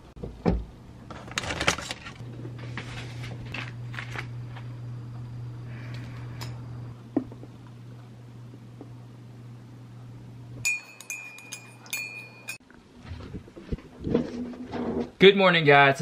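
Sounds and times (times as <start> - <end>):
low steady hum: 0.0 - 14.6
spoon clinking in ceramic mug: 10.6 - 12.6.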